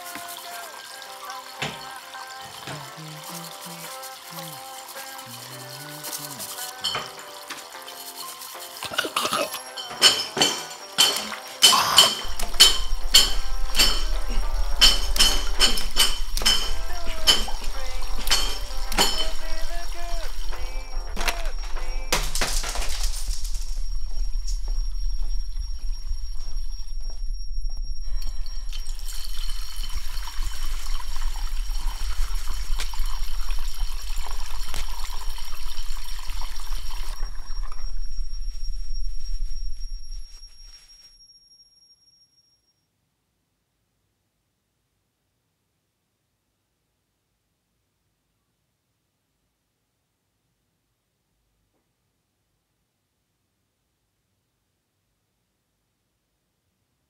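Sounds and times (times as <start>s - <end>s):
running water rushing: 0.0s - 23.4s, 28.2s - 37.7s
rhythmic metallic clinking: 0.1s - 37.5s
crackles: 10.7s - 41.3s
low drone: 11.7s - 40.6s
high steady whine: 11.7s - 42.2s
low steady hum: 12.2s - 41.0s.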